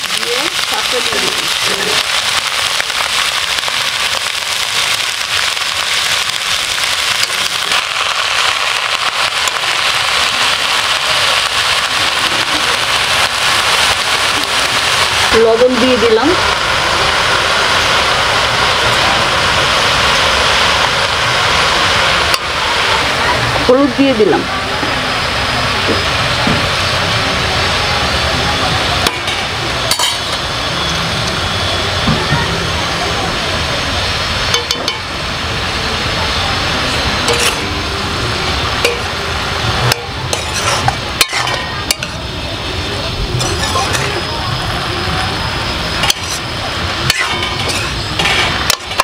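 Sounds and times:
vegetables sizzling in oil: 0.0s - 49.0s
steel spoon scraping a pan: 29.3s - 30.4s, 37.2s - 37.7s, 39.9s - 42.2s, 43.4s - 44.1s, 46.0s - 49.0s.

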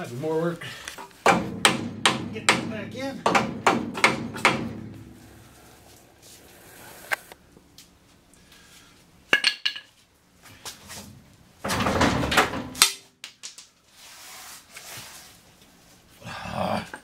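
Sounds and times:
metal scraping: 3.9s - 7.4s.

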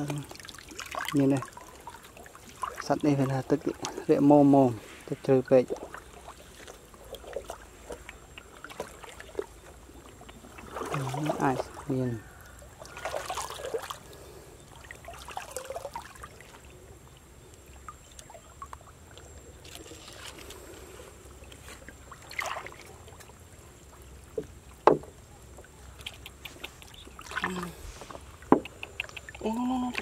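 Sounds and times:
water sloshing and swishing: 0.0s - 30.0s
sharp short splashes: 10.4s - 11.9s, 12.5s - 14.0s, 22.1s - 23.2s.

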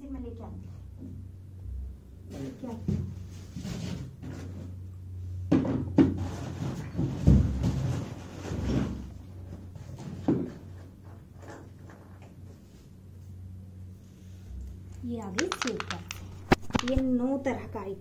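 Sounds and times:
steady low hum: 0.0s - 18.0s
cupboard knocks and clatters: 5.5s - 9.0s.

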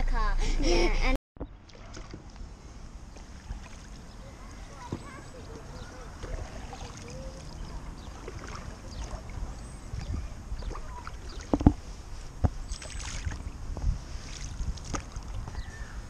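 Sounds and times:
steady low rumble: 0.0s - 16.0s
paddle splashing in water: 1.6s - 2.4s, 3.1s - 4.0s, 6.1s - 12.0s, 12.7s - 13.5s, 14.1s - 15.4s.

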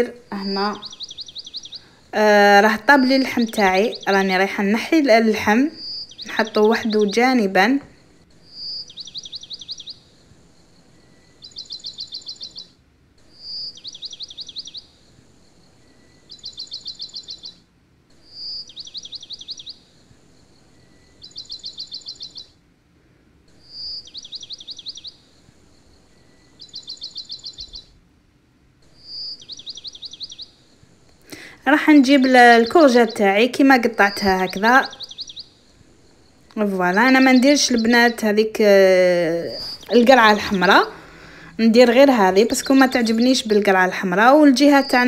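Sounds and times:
bird chirps and trills: 0.0s - 22.6s, 23.4s - 28.0s, 28.8s - 45.0s.

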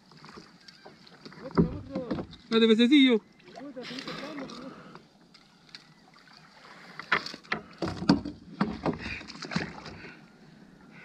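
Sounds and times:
knocks and thumps on a kayak: 1.2s - 2.7s, 7.0s - 10.0s.

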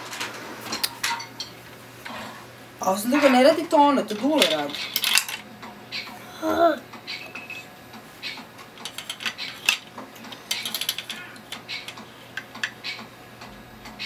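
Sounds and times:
plastic bricks clicking and clattering: 4.2s - 5.4s, 8.8s - 12.8s.

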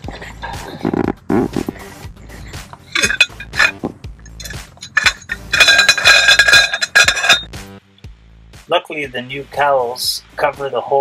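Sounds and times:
metal parts clinking and knocking: 2.9s - 7.5s
metallic ringing: 2.9s - 7.5s.

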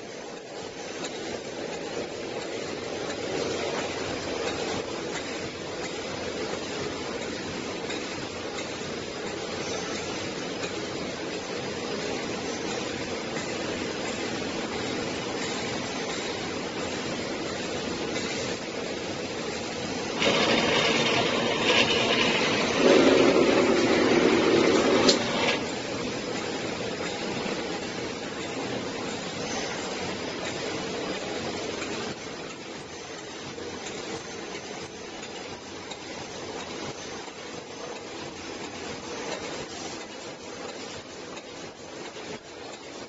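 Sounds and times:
machine hiss: 0.0s - 43.0s
machine running: 18.2s - 30.0s
spring machine clattering: 20.1s - 25.8s.

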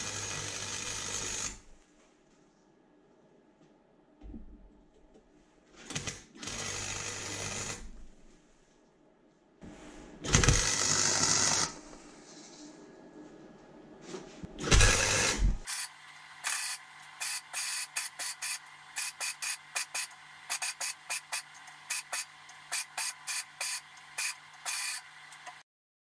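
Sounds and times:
arc welder crackling hiss: 14.8s - 25.6s.

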